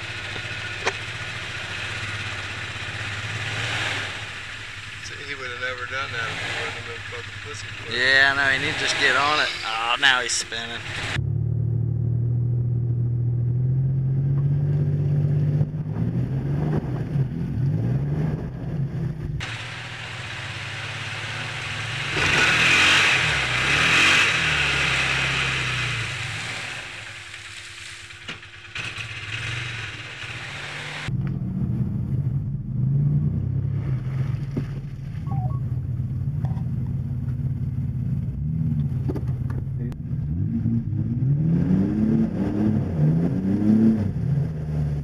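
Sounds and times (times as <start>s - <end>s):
hissy rush: 0.0s - 11.2s, 19.4s - 23.7s
off-road vehicle engines revving: 0.0s - 45.0s.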